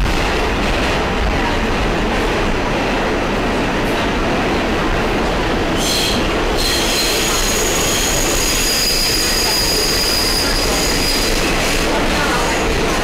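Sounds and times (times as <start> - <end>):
subway wheels rumbling on track: 0.0 - 13.0
metallic wheel squeal: 5.8 - 11.4.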